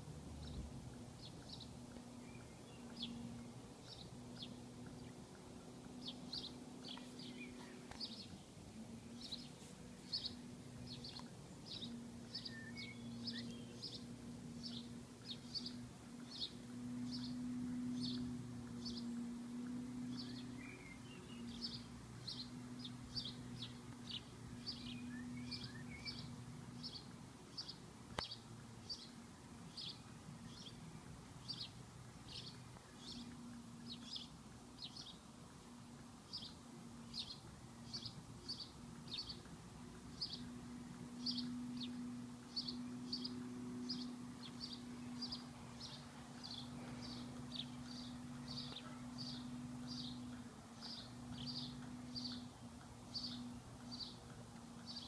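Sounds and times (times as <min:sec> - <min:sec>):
low steady hum: 0:00.0 - 0:55.0
bird chirping: 0:00.3 - 0:55.0
faint bird calls: 0:41.2 - 0:55.0.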